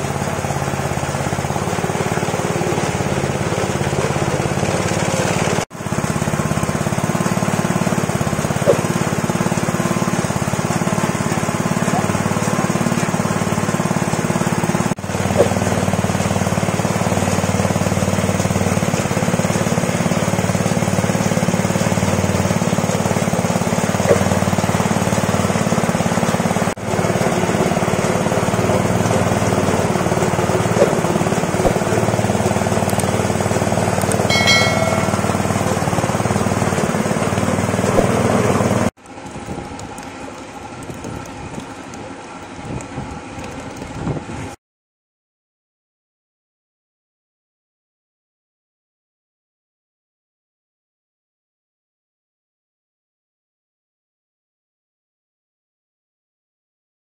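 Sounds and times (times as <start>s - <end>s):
petrol engine running under load: 0.0s - 38.9s.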